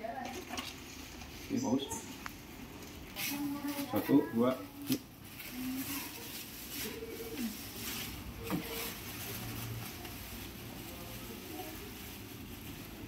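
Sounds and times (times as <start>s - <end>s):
low steady background hum: 0.0s - 13.0s
plastic film rustling and crinkling: 2.7s - 13.0s.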